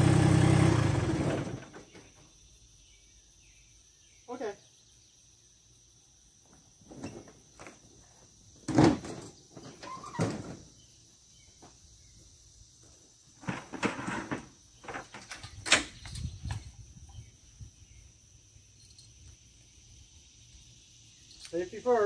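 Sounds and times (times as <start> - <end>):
high insect drone: 0.2 - 22.0
metal clunks and rattles: 8.6 - 10.7.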